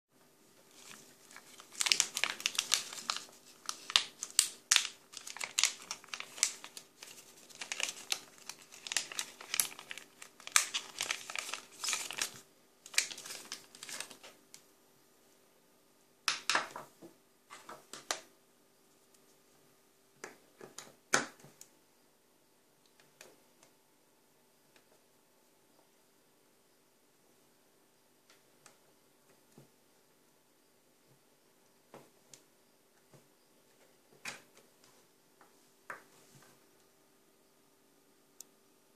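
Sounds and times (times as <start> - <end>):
plastic packaging crinkling: 0.6 - 14.4.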